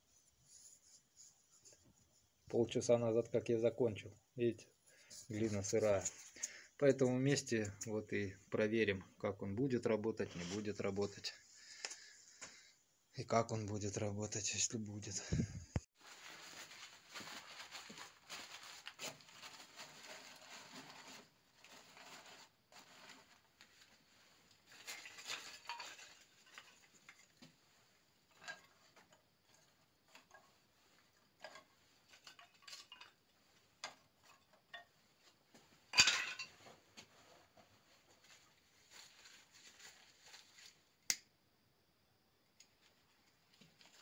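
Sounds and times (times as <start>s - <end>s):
paper rustling and crumpling: 16.0s - 27.6s, 37.3s - 40.9s
wood kindling clinks and knocks: 28.2s - 37.5s.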